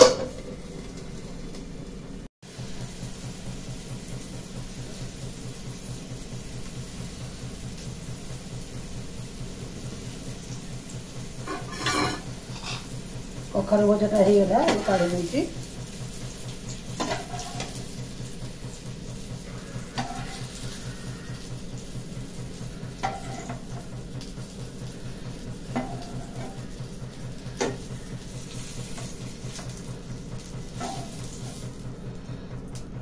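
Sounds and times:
oil sizzling in a frying pan: 0.0s - 32.8s
steady low hum: 0.0s - 33.0s
metal spatula clinking on pan: 11.5s - 12.8s.

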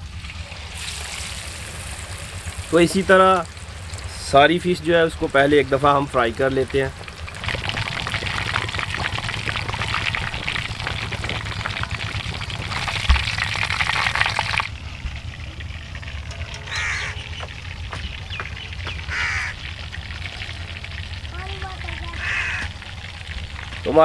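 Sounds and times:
fish sizzling in hot oil: 0.0s - 24.0s
bird calls: 16.5s - 20.6s, 22.0s - 22.7s.

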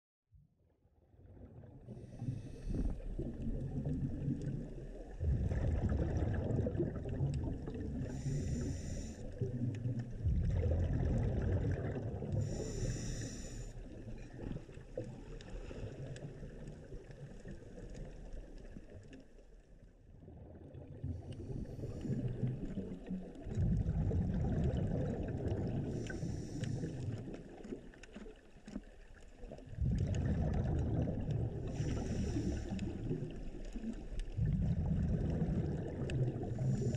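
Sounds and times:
muffled underwater gurgling rumble: 0.4s - 36.9s
short hissing bursts: 12.5s - 13.7s.

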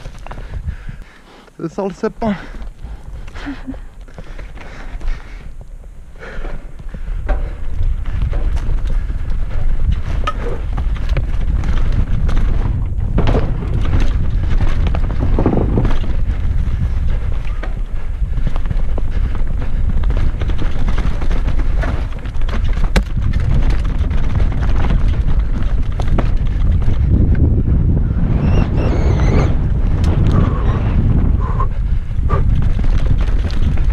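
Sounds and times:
wind on microphone: 0.0s - 1.4s, 2.3s - 33.9s
tyres on dirt: 0.0s - 33.9s
bike rattling clicks: 2.5s - 27.5s, 31.2s - 33.9s.

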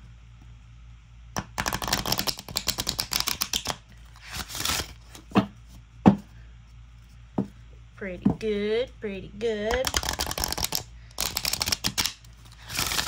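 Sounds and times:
cards being riffle-shuffled: 1.4s - 5.3s, 9.7s - 13.0s.

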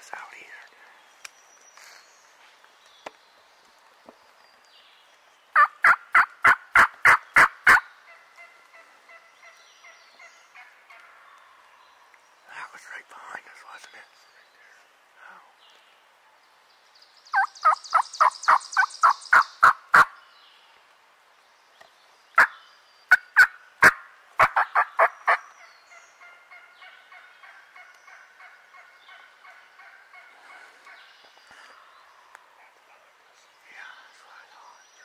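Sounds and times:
turkey yelping: 5.6s - 9.6s, 23.1s - 25.4s.

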